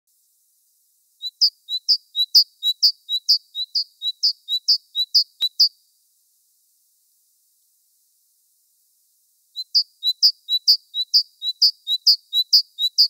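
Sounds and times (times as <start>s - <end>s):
bird-like chirping: 1.2s - 5.9s, 9.5s - 13.0s.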